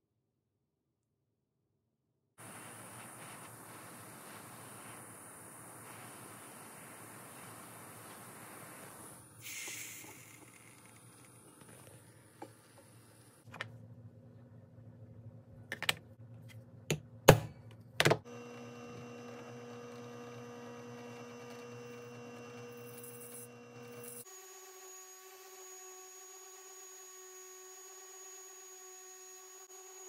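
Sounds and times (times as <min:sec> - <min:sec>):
drill press motor humming: 0:18.3 - 0:30.0.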